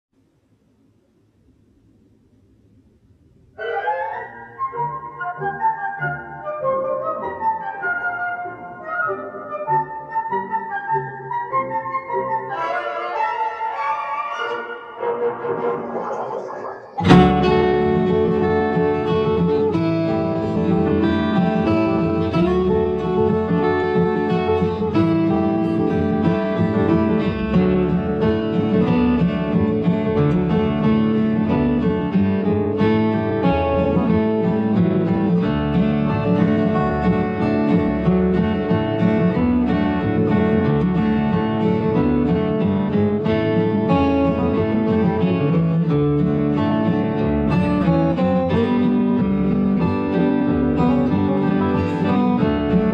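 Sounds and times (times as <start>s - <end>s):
guitar plucked and strummed: 17.0s - 52.9s.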